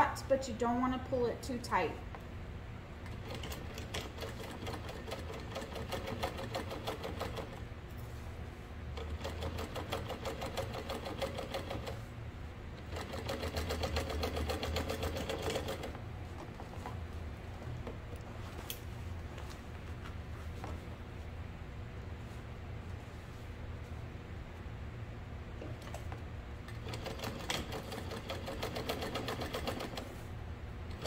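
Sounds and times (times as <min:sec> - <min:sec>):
sewing machine motor hum: 0:03.0 - 0:08.1, 0:08.9 - 0:12.1, 0:12.7 - 0:16.6, 0:25.6 - 0:30.3.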